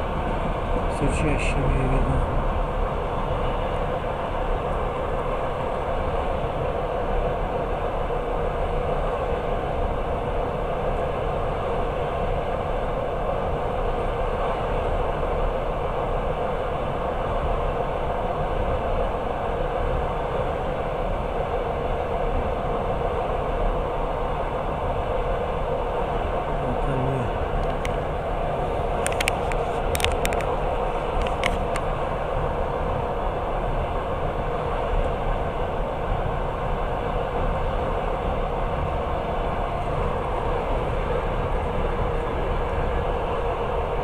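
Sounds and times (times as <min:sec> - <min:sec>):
train wheels rumbling on rails: 0:00.0 - 0:44.0.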